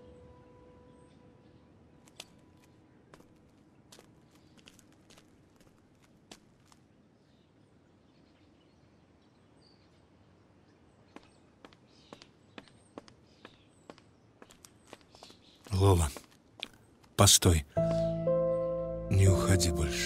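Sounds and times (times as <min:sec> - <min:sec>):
faint footsteps clicking: 0:02.0 - 0:06.9, 0:11.1 - 0:17.2.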